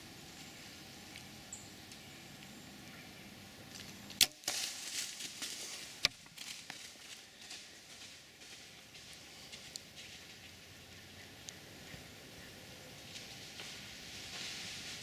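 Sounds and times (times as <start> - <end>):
deer running through dry leaves: 3.7 - 11.0, 13.0 - 15.0.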